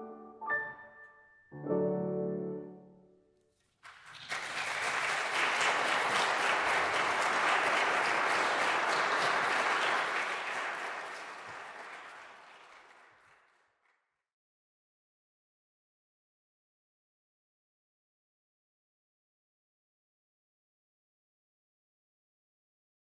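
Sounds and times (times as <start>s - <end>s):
audience applauding: 3.8s - 13.8s.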